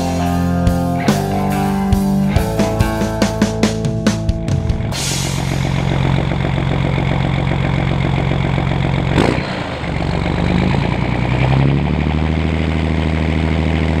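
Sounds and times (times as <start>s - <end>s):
diesel tractor engine running: 4.8s - 14.0s.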